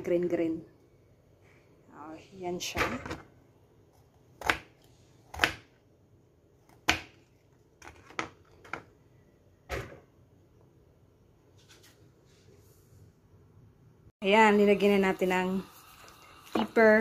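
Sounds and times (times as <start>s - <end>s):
knife chopping on plastic board: 4.4s - 5.8s, 6.6s - 8.8s.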